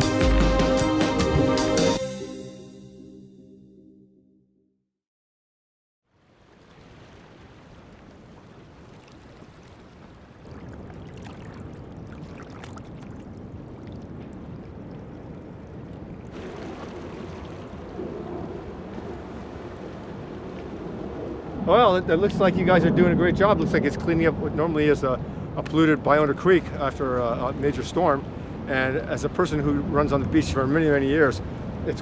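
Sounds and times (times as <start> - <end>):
flowing water rushing: 6.2 - 20.9.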